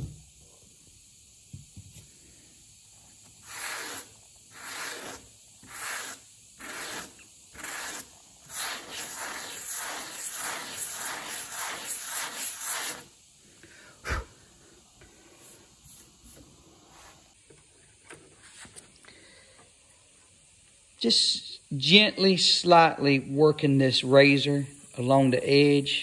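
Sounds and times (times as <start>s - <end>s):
sanding block rasping: 3.4s - 13.1s.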